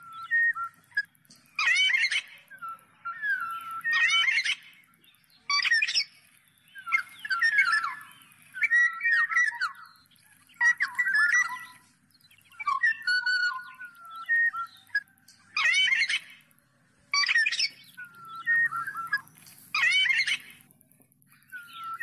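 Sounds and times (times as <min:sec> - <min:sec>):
oriole calling: 0:17.1 - 0:20.7.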